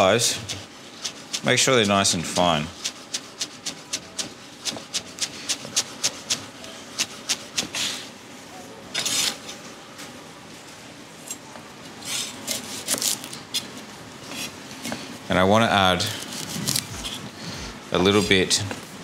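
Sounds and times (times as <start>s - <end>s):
knife scraping on board: 0.3s - 8.0s, 8.9s - 9.5s.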